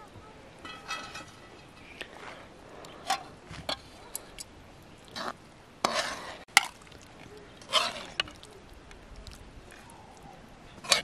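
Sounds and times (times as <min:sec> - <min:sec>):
ladle scraping pot: 0:05.1 - 0:06.8, 0:07.6 - 0:08.5, 0:10.8 - 0:11.0.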